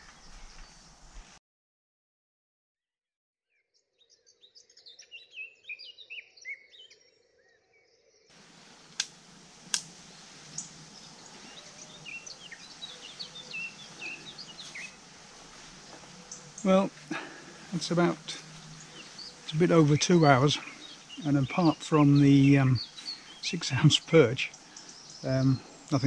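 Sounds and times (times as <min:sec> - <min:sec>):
birds chirping: 0:00.0 - 0:01.4, 0:08.3 - 0:26.0
steady outdoor hiss: 0:00.0 - 0:01.4, 0:08.3 - 0:26.0
sharp clicks: 0:08.9 - 0:10.0.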